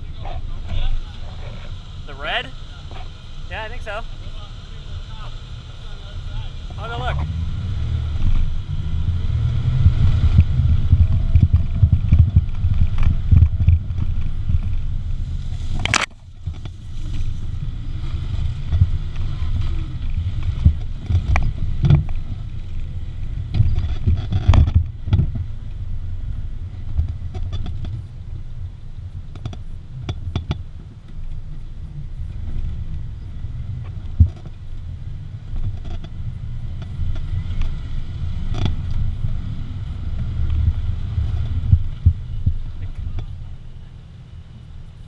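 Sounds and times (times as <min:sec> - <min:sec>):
vehicle engine rumbling: 0:00.0 - 0:45.0.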